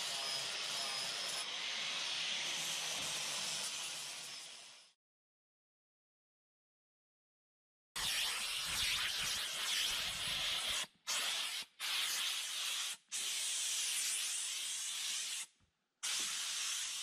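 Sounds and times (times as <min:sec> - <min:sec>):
sprayer hissing: 0:16.0 - 0:17.0.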